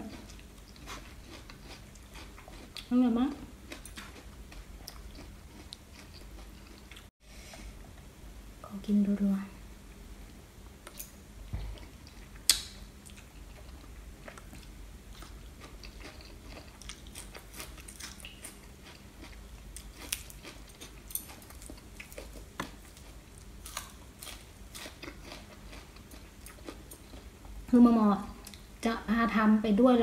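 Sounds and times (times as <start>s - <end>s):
person chewing food: 0.1s - 2.9s, 3.6s - 8.0s, 10.8s - 27.6s.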